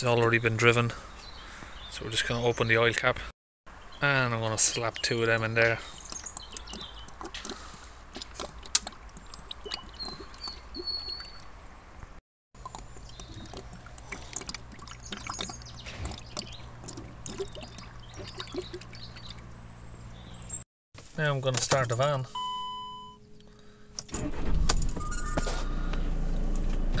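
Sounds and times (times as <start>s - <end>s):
liquid trickling and gurgling: 5.8s - 11.7s, 12.6s - 20.3s.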